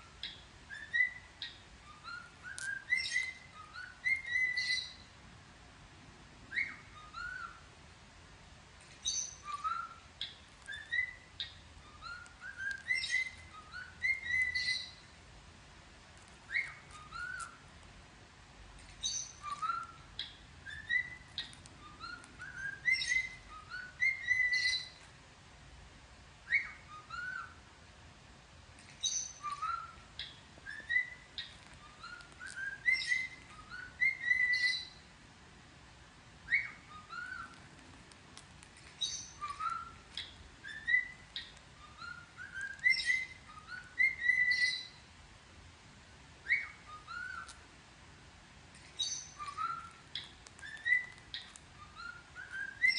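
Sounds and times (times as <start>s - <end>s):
bird whistling a tune: 0.0s - 5.0s, 6.5s - 7.6s, 9.0s - 15.0s, 16.5s - 17.6s, 19.0s - 25.0s, 26.5s - 27.6s, 29.0s - 35.0s, 36.4s - 37.6s, 39.0s - 45.0s, 46.4s - 47.6s, 49.0s - 52.9s.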